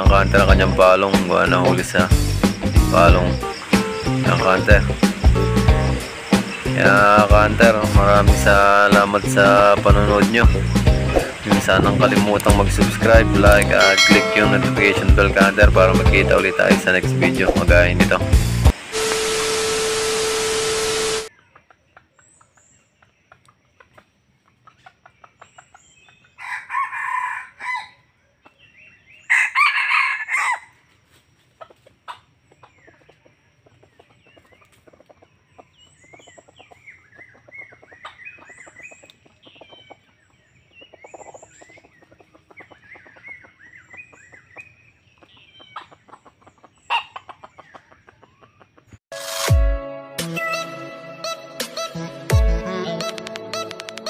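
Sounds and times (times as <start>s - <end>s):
static hiss with steady tone: 18.4s - 21.3s
rooster crowing: 26.4s - 28.1s, 29.2s - 30.8s.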